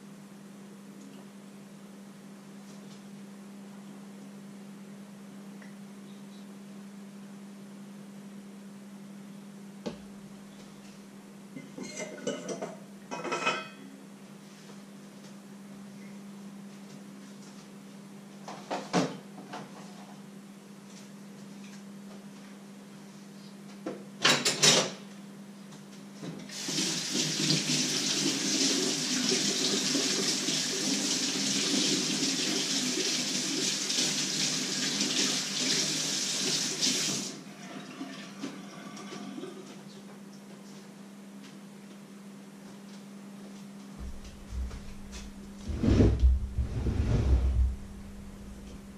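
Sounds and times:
dishes clattering: 0:11.6 - 0:13.8
steady low hum: 0:43.8 - 0:48.9.

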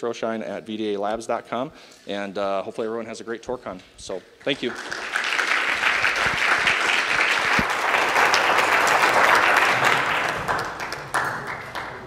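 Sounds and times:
small audience applauding: 0:04.5 - 0:12.0.

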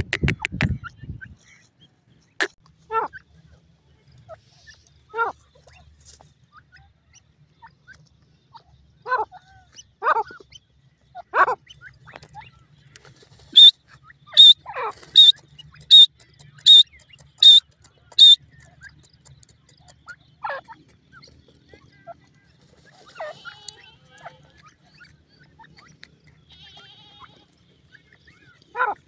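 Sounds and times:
francolins falling calls: 0:13.4 - 0:17.6, 0:22.9 - 0:29.0
sharp high bird chirps: 0:13.5 - 0:21.4.

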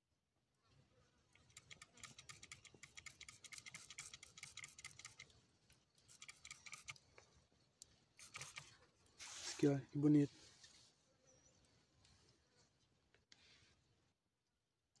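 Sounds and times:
faint rapid ticking: 0:01.4 - 0:05.2, 0:06.1 - 0:07.0.

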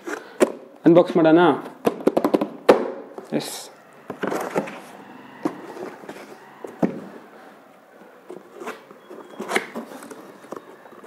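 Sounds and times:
cardboard scraping and rustling: 0:04.0 - 0:07.4, 0:08.0 - 0:11.0.

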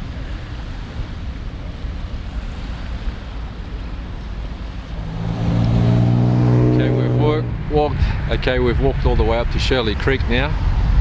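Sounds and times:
waves lapping on beach: 0:00.0 - 0:08.3
vehicle engine hum: 0:00.0 - 0:11.0
wind buffeting microphone: 0:00.0 - 0:11.0.

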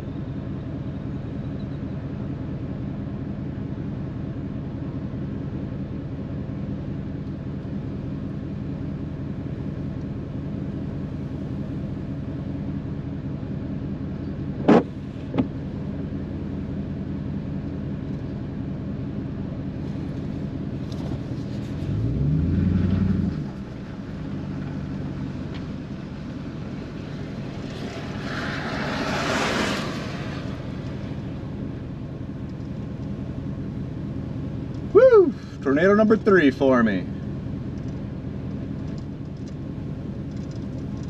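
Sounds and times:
car engine idling: 0:00.0 - 0:41.0
car engine revving: 0:20.8 - 0:39.7
sharp clicks: 0:37.7 - 0:39.6.

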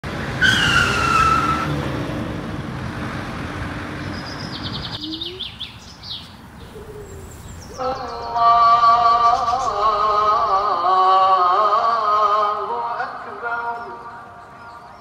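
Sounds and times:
road traffic passing cars: 0:00.0 - 0:15.0
high bird chirps: 0:04.0 - 0:08.5.

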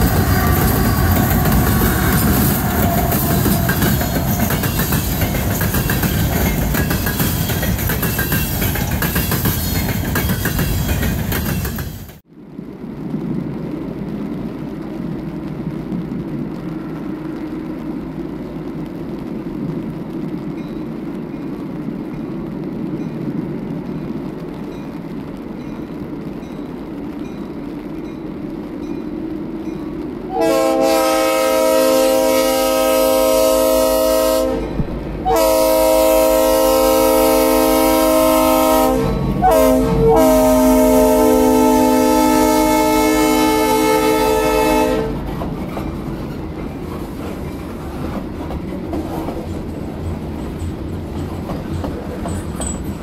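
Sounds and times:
diesel freight train rumbling: 0:00.0 - 0:53.0
train air horn blasts: 0:30.3 - 0:45.3.

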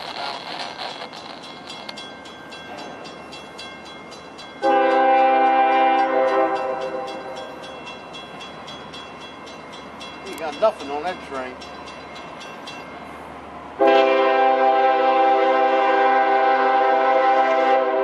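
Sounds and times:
train locomotives rumbling: 0:00.0 - 0:18.0
locomotive air horn blast: 0:04.6 - 0:07.1, 0:13.8 - 0:18.0.

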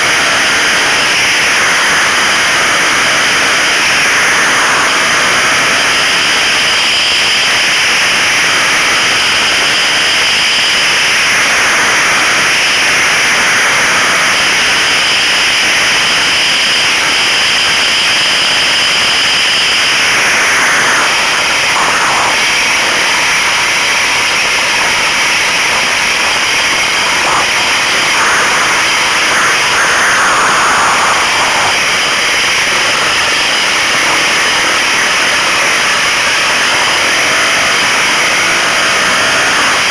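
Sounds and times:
loud wind noise: 0:00.0 - 0:39.9.

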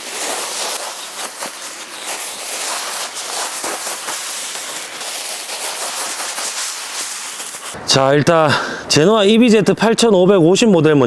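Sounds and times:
dry leaves pouring onto concrete: 0:00.0 - 0:07.8
plastic sack rustling: 0:00.0 - 0:07.8.

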